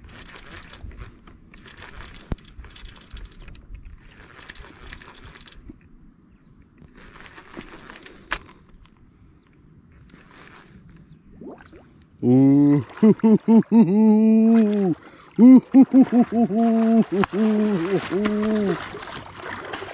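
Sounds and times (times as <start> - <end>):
fishing reel clicking: 0.0 - 5.8, 6.8 - 9.0, 10.0 - 11.0
rustling: 6.9 - 8.8.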